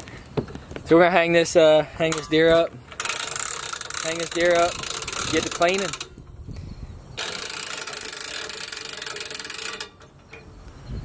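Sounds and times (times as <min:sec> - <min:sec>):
ratchet winch clicking: 0:02.1 - 0:06.4, 0:07.2 - 0:10.7.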